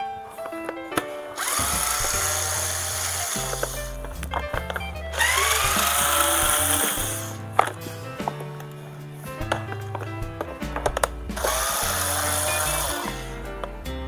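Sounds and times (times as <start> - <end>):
background music: 0.0 - 14.0
electric screwdriver whine: 1.4 - 3.8, 5.2 - 7.3, 11.5 - 13.2.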